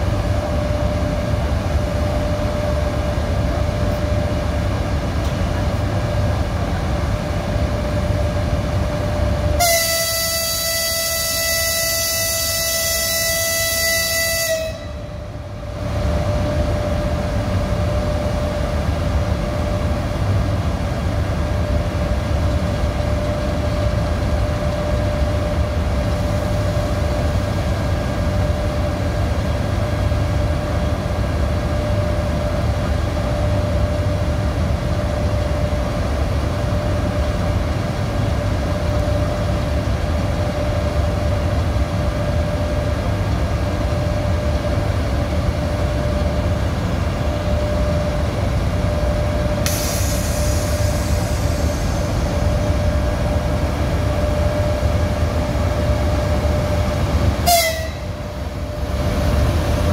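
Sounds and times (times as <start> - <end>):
locomotive rumble with whine: 0.0 - 59.9
locomotive horn chord: 9.6 - 15.3, 57.4 - 58.2.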